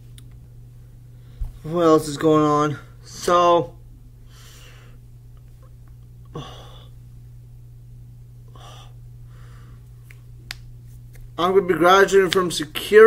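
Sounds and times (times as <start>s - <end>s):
low electrical hum: 0.0s - 13.0s
man breathing through nose: 4.3s - 5.0s, 8.5s - 9.9s.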